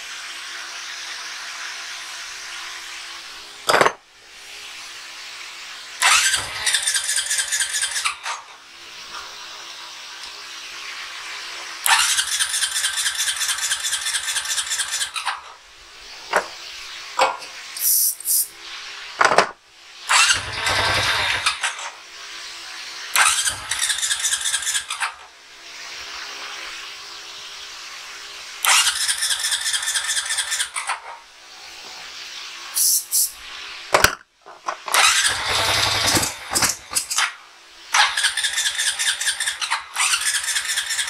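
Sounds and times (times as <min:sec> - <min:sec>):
engine cranking on starter: 0:06.0 - 0:08.4, 0:11.9 - 0:15.4, 0:20.1 - 0:21.9, 0:23.2 - 0:25.1, 0:28.7 - 0:31.0, 0:34.8 - 0:37.3, 0:38.0 - 0:41.0.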